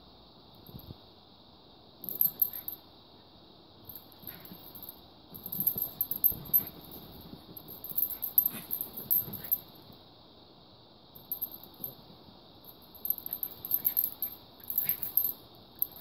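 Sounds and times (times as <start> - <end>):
dogs play-fighting: 5.5 - 9.7, 13.2 - 15.3.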